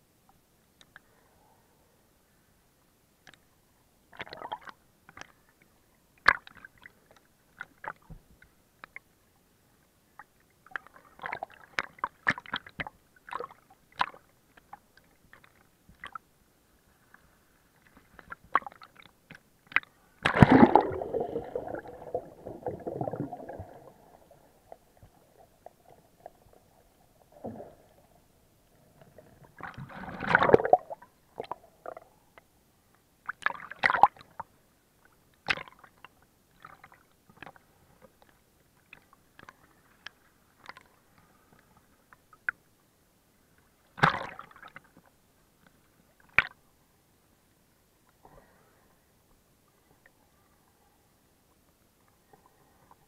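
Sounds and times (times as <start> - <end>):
crackles and clicks: 17.0 - 28.0
water sloshing and gurgling: 17.0 - 32.2.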